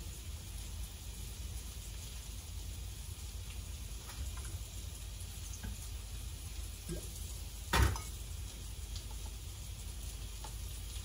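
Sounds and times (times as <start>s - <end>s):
loud bottle clunk: 7.7s - 8.2s.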